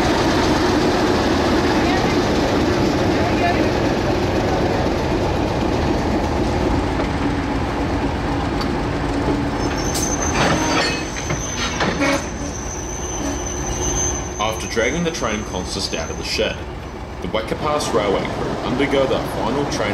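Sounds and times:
railway carriages rumbling: 0.0 - 19.9
high wheel squeal: 9.6 - 16.2.

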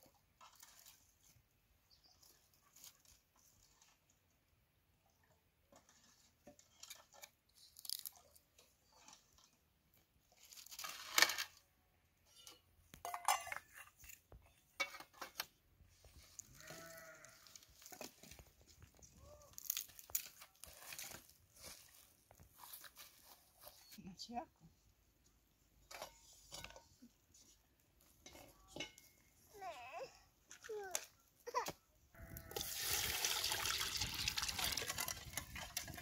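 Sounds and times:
metal bowls clinking: 12.3 - 13.8, 32.6 - 36.0.

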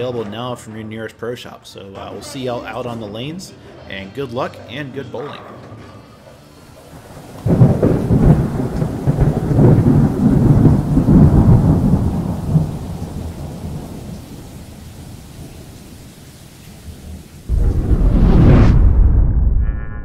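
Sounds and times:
deep thunder rumble: 7.0 - 15.7, 17.5 - 19.6.

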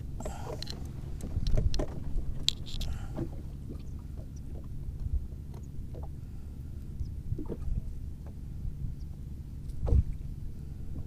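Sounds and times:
boat low rumble: 0.0 - 11.0
light clicks and rustles: 0.2 - 6.1.

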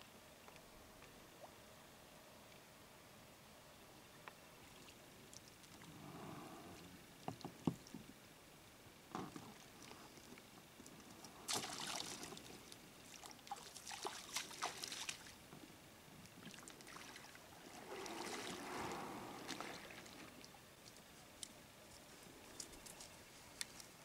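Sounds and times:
water splashing and sloshing: 9.3 - 15.5, 16.3 - 21.5
boat dragged scraping on bank: 17.7 - 20.4.

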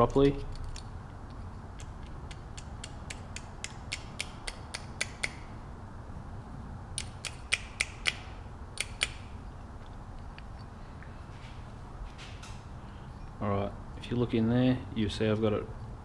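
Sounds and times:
small metal parts clicking: 0.2 - 3.5.

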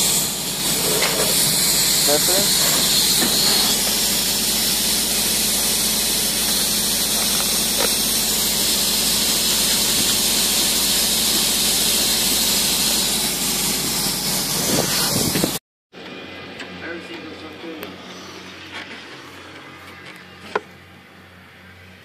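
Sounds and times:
spray foam equipment hissing: 0.0 - 15.6.

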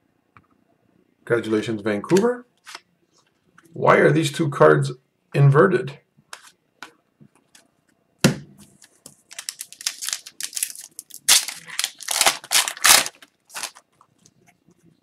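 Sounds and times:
wrapper tearing and crinkling: 9.3 - 13.9.

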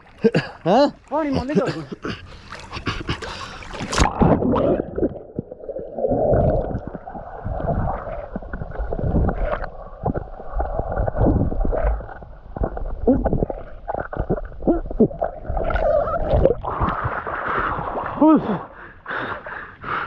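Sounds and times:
pool water splashing: 0.0 - 18.4
underwater gurgling and bubbling: 1.3 - 18.8.

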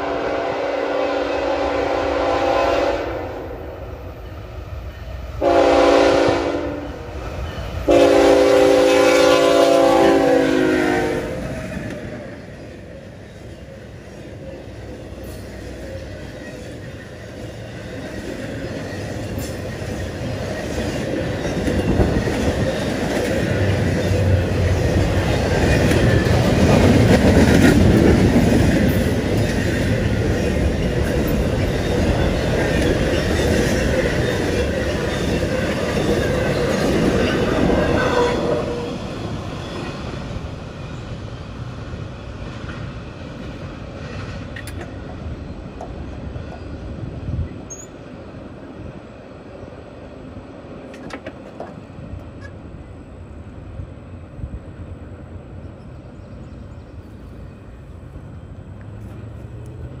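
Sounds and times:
locomotive air horn: 0.0 - 3.5, 5.4 - 7.1, 7.9 - 11.5, 37.7 - 39.0
freight train rumbling: 0.0 - 60.0
wheel clatter on rail joints: 13.3 - 38.2, 50.8 - 52.6.

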